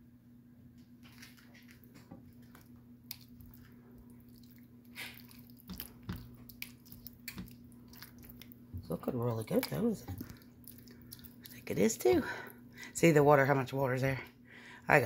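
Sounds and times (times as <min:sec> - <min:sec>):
faint steady hum: 0:00.0 - 0:15.0
spatula stirring thick sauce: 0:03.1 - 0:12.6.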